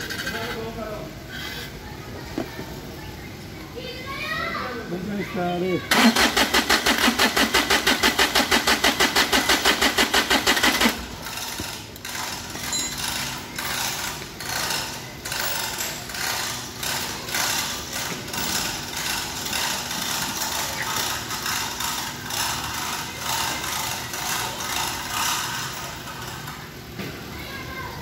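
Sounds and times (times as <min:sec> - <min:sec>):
starter motor cranking engine: 0:05.9 - 0:26.6.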